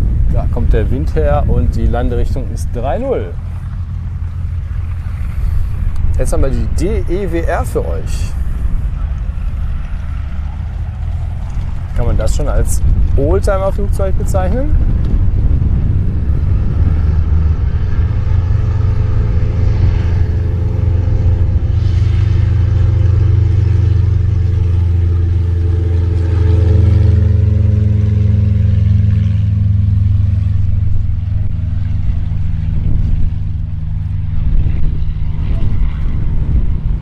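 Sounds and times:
propeller plane engine drone: 0.0s - 37.0s.

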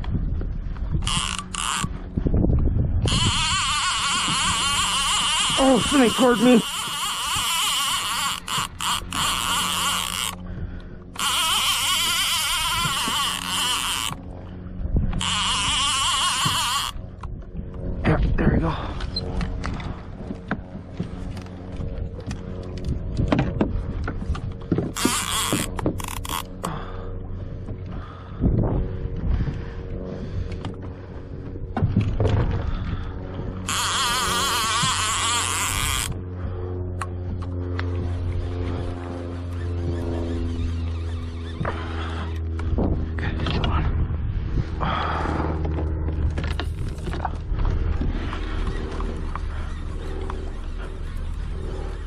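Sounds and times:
steady low hum: 0.0s - 52.0s
fishing reel whining: 0.8s - 17.5s, 24.1s - 27.1s, 32.0s - 43.6s, 44.8s - 52.0s.

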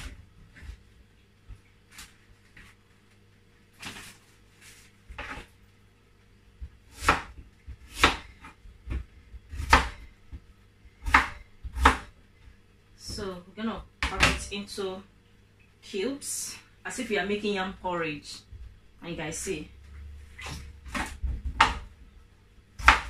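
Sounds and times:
knife chopping on wooden board: 6.9s - 10.0s, 11.0s - 12.1s, 20.4s - 21.9s, 22.8s - 23.0s.

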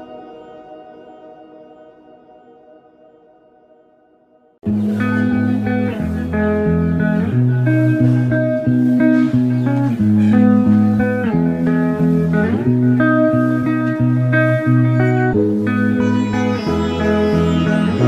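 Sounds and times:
bass line: 4.6s - 18.0s
plucked guitar melody: 4.6s - 18.0s.

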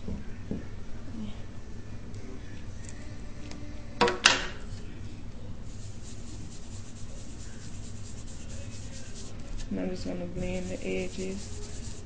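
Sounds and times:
foam tool rubbing on paper: 5.6s - 9.7s, 10.4s - 12.0s.

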